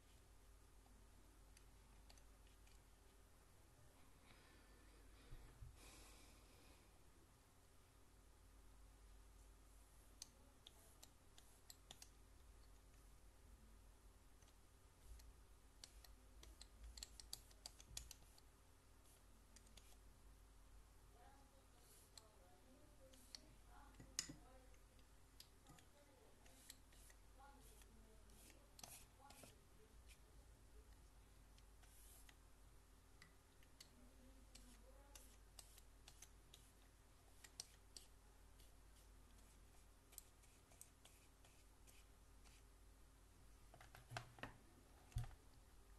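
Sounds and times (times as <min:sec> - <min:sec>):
faint low hum: 0:00.0 - 0:45.9
light irregular clicks: 0:10.1 - 0:13.1, 0:15.2 - 0:18.5.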